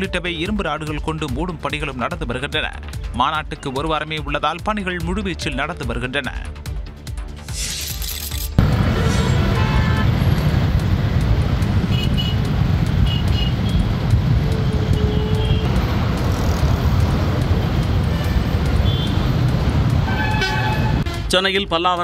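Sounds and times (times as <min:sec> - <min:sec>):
vehicle engines rumbling: 0:08.6 - 0:22.0
short horn beeps: 0:20.1 - 0:21.2.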